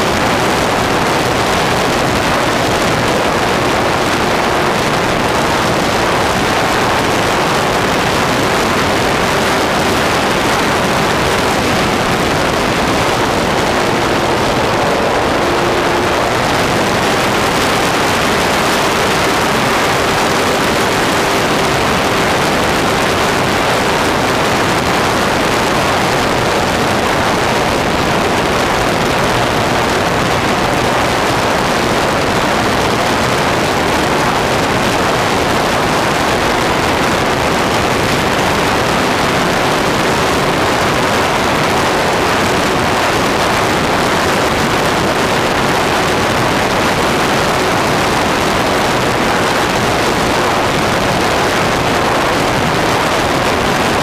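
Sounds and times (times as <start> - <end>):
wind rushing over camera: 0.0 - 54.0
model plane motor humming: 1.6 - 32.8.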